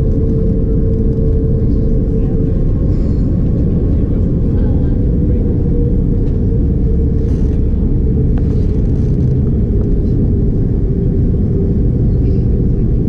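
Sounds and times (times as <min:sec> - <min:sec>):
airliner cabin low rumble: 0:00.0 - 0:13.0.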